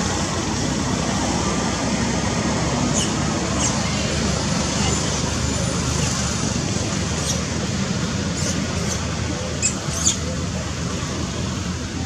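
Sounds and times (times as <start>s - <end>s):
animal squeaking high: 9.6s - 10.3s.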